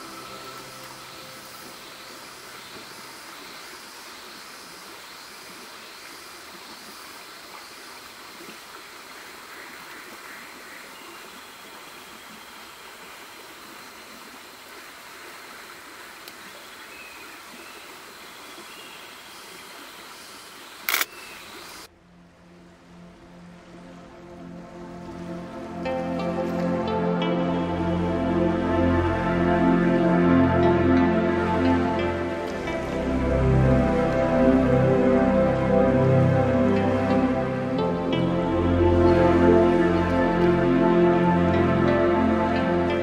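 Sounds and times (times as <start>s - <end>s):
running water rushing: 0.0s - 43.0s
sharp click: 20.8s - 21.2s.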